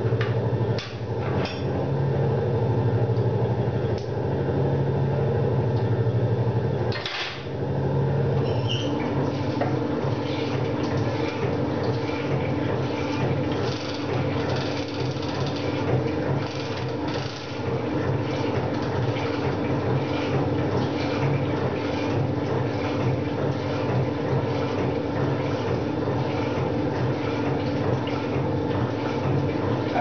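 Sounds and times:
metal shaper motor hum: 6.9s - 30.0s.

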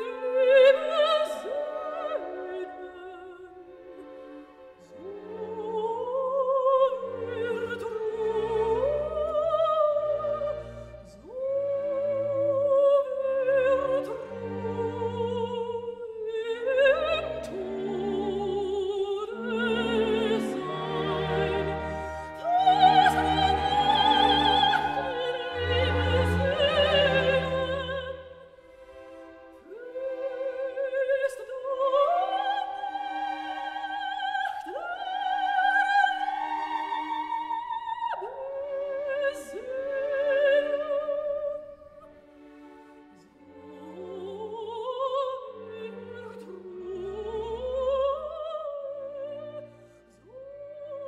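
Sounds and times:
opera singing high voice: 4.8s - 28.4s, 29.6s - 41.8s
orchestral chords: 17.0s - 29.8s.

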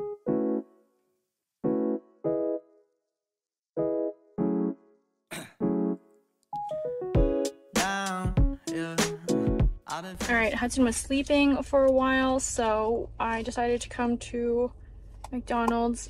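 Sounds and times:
piano-like keyboard chords: 0.0s - 0.9s, 1.6s - 2.9s, 3.8s - 5.0s, 5.6s - 9.8s.

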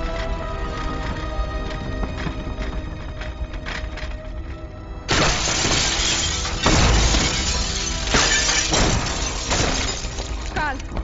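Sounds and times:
dramatic background music: 0.0s - 11.0s
glass shattering: 5.1s - 10.6s.

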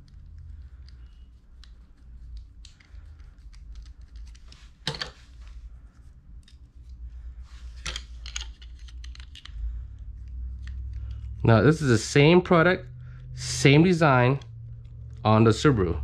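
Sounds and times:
screwdriver bits clicking: 8.2s - 9.6s.

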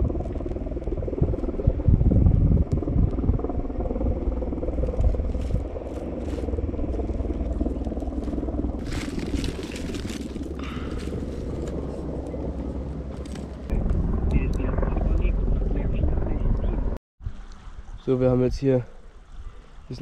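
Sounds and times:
wind on microphone: 0.0s - 18.6s
dry twigs crackling: 4.9s - 13.7s.

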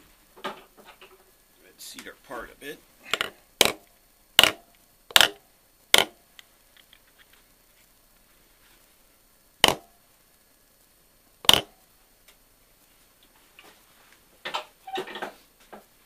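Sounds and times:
hammer tapping on metal: 4.4s - 6.2s, 9.6s - 9.9s.

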